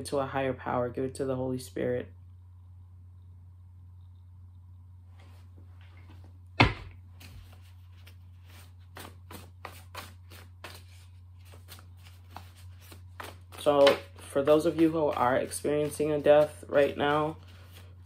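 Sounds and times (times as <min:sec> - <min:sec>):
low steady hum: 0:00.0 - 0:18.0
cards being shuffled: 0:07.1 - 0:18.0.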